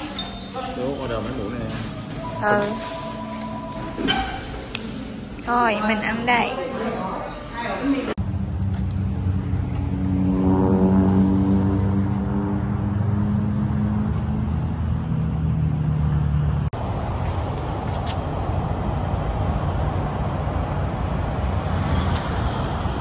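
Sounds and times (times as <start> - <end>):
road noise: 0.0 - 23.0
vehicle engine accelerating: 8.2 - 23.0.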